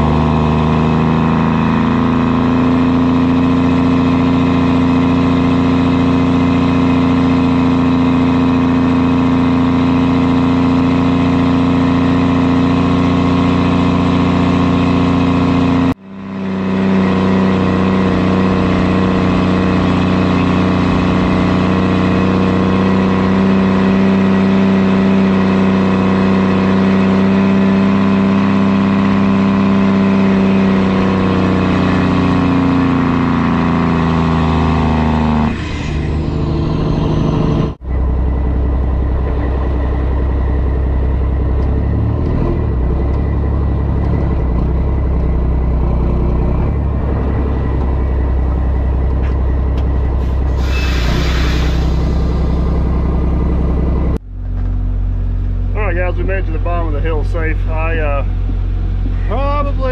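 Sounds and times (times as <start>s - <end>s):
deep engine rumble: 0.0s - 59.9s
truck engine and road drone: 0.0s - 59.9s.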